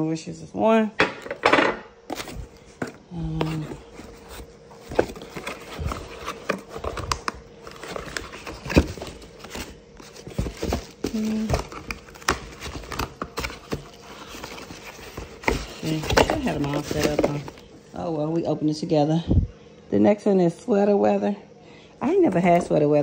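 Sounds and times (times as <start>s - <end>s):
cardboard boxes knocking and scraping: 2.1s - 7.1s, 7.7s - 17.6s
plastic packing crinkling: 2.1s - 17.8s.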